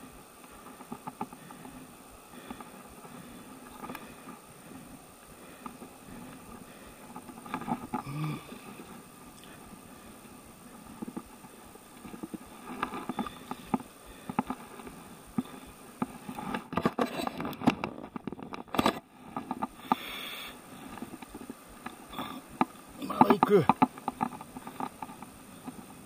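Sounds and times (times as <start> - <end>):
pole sections clicking and knocking: 10.7 - 20.1, 20.8 - 26.0.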